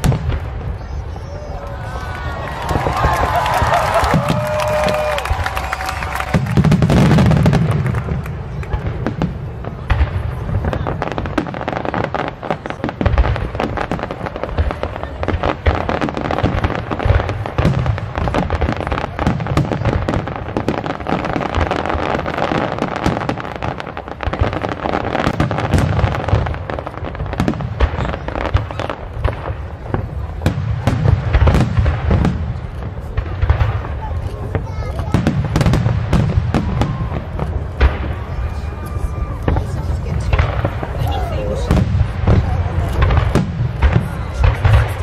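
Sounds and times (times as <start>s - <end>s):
fireworks booming and crackling: 0.0s - 45.0s
people talking: 33.8s - 35.4s, 38.2s - 45.0s.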